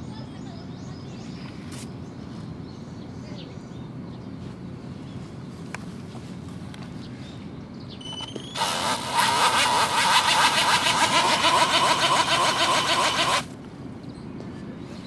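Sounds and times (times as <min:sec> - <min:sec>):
electric motor whining: 0:08.6 - 0:13.5.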